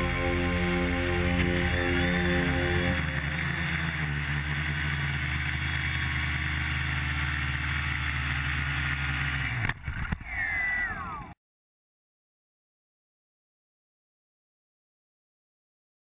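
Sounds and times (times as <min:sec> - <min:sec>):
short falling whine: 0:00.0 - 0:05.4
quadcopter propellers buzzing: 0:00.0 - 0:10.1.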